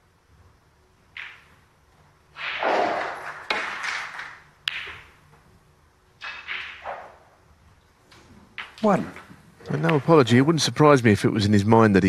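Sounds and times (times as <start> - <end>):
snooker balls colliding: 1.1 - 1.6, 2.4 - 5.2, 6.2 - 7.4, 8.4 - 10.2
cue tip hitting cue ball: 1.2 - 1.4, 2.4 - 5.2, 6.2 - 7.3, 8.6 - 10.1.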